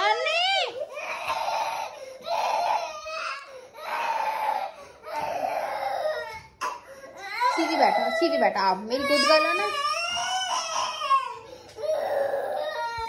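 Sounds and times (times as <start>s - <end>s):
girl wailing: 7.3s - 11.2s.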